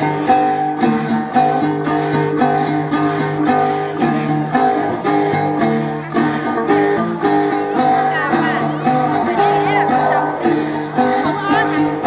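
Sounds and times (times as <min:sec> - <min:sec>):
plucked lute folk dance music: 0:00.0 - 0:12.0
low drone: 0:07.7 - 0:12.0.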